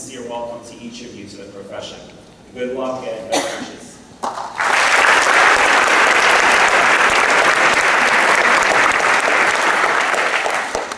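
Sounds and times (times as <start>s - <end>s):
audience applauding: 4.2s - 10.9s.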